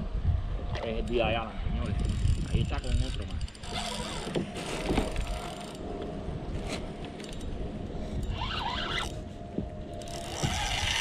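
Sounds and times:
steady low rumble: 0.0 - 3.6, 9.0 - 11.0
fishing reel gears whirring: 1.9 - 5.9, 7.2 - 9.3, 9.9 - 11.0.

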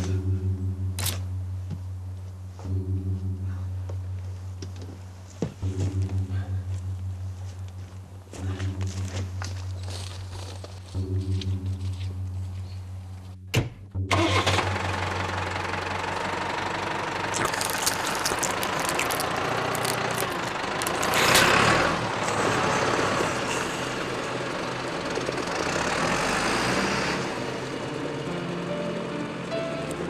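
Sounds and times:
tractor engine running: 14.0 - 30.0.

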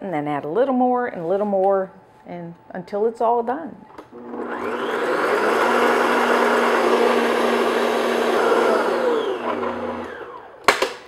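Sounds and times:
stand mixer whisking: 4.2 - 10.5.

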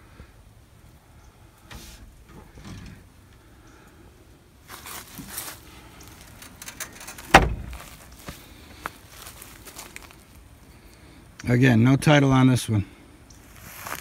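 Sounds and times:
rustling and handling noise: 4.6 - 10.7
light knocks and steps: 4.7 - 10.3
car door shutting: 7.0 - 7.8.

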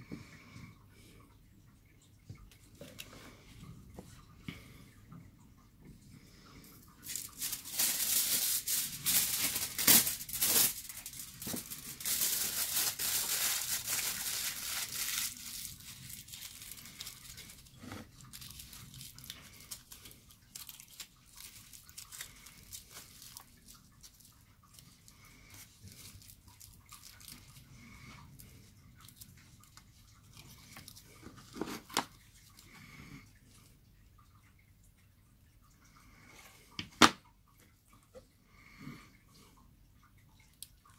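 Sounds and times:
aluminium foil crinkling: 7.0 - 27.7.

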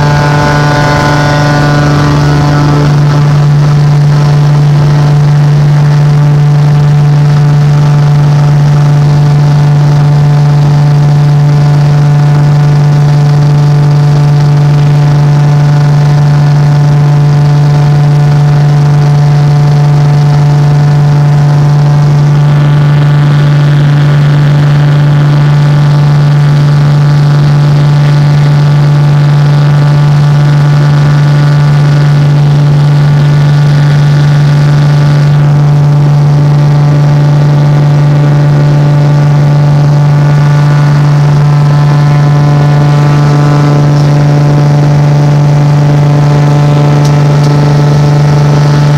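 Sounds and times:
airplane engine drone from cabin: 0.0 - 48.9.

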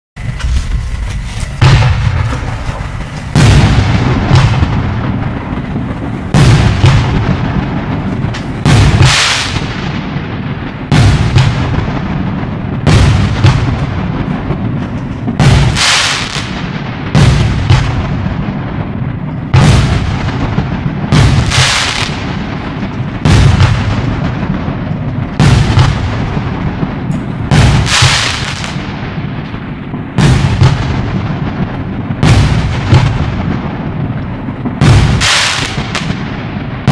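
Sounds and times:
fireworks bangs with echo: 0.2 - 36.9.

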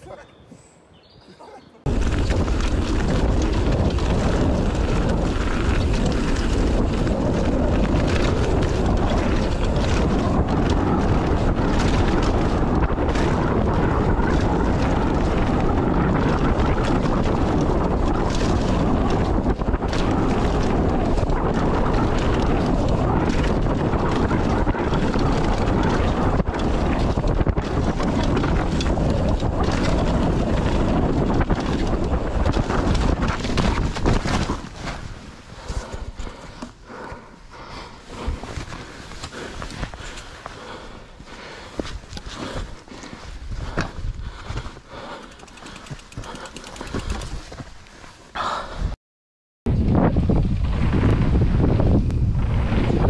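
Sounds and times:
wind buffeting microphone: 1.8 - 49.0, 49.7 - 53.0
mountain bike rumble and rattle: 1.9 - 49.0, 49.7 - 53.0
small clicks and knocks: 45.2 - 47.5.

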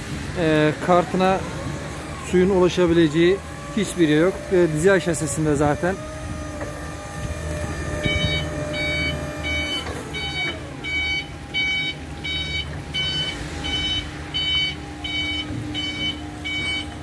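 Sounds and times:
forklift low hum: 0.0 - 17.0
forklift reversing alarm beeping: 1.4 - 17.0.

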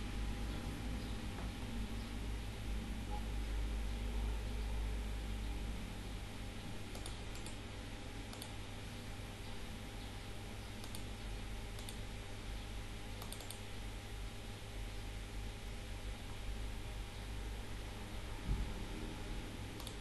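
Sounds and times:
low hum and hiss: 0.0 - 20.0
computer mouse clicks: 6.9 - 7.6, 8.3 - 8.6, 10.8 - 11.1, 11.8 - 12.1, 13.2 - 13.7, 19.8 - 20.0.

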